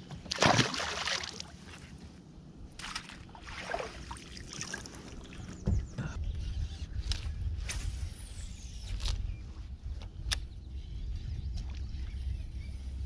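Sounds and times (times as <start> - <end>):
water splashing: 0.3 - 1.6, 2.8 - 5.3.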